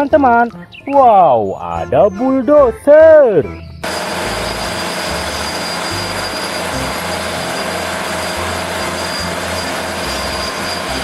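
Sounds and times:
bulldozer running: 3.8 - 11.0.

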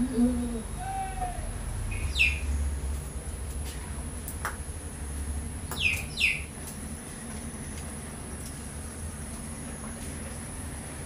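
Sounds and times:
small bird chirping: 0.8 - 2.7, 5.7 - 6.5.

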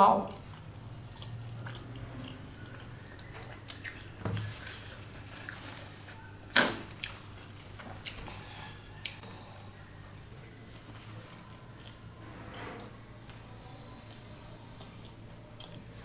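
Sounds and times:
faint clicks and mouth sounds: 0.3 - 4.1, 9.0 - 10.4.

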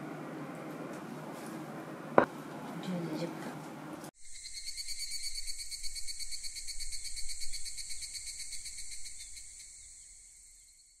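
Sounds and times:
crickets chirping: 4.2 - 11.0.

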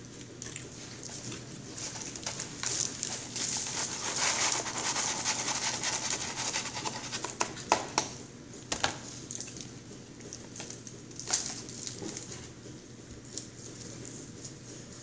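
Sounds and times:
paper carton rustling: 1.6 - 7.6.

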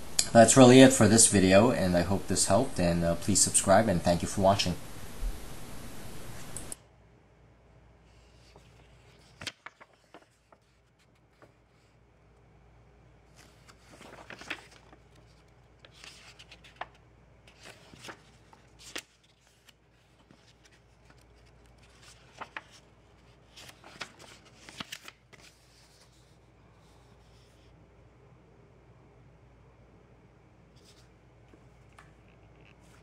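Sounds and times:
paper pages rustling: 8.1 - 12.0, 13.3 - 27.7, 30.8 - 33.0.

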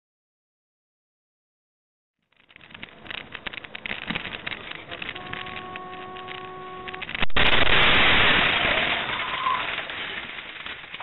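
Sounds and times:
rattling van road noise: 2.5 - 7.5
vehicle horn: 4.8 - 7.2
loud collision crash: 7.0 - 11.0
windscreen glass shattering: 7.1 - 11.0.

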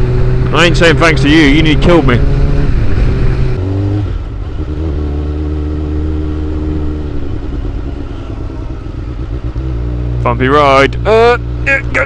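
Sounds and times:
rushing wind noise: 0.0 - 5.1
motorcycle engine running: 0.0 - 12.0.

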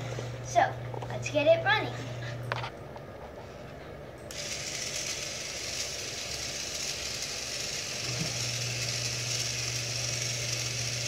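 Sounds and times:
toy motor and plastic gears whirring: 4.3 - 11.0.

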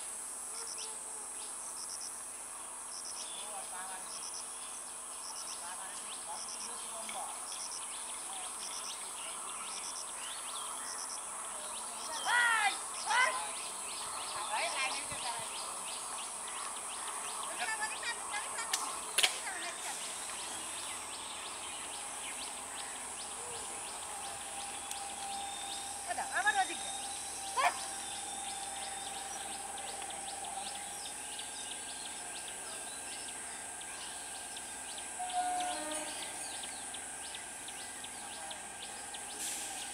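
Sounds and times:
high insect drone: 0.0 - 39.9
bird chirps: 3.1 - 39.9
high-pitched insect buzzing: 33.9 - 37.7.

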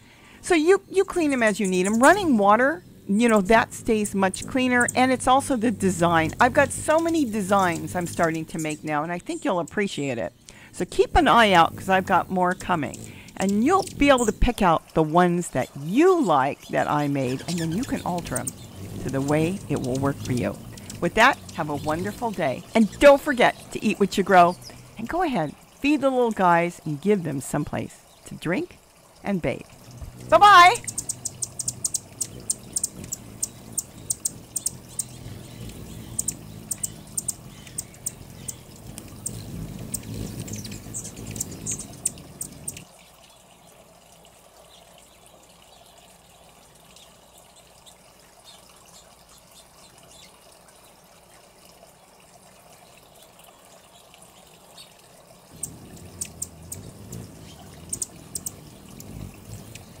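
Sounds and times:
fountain water trickling and splashing: 0.0 - 60.0
rapid sharp high ticks: 30.0 - 42.9.

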